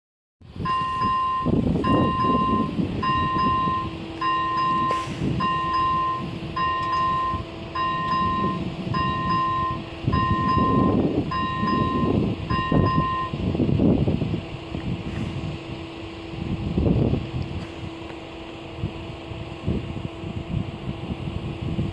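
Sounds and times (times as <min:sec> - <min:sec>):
low irregular rumble: 0:00.5 - 0:21.9.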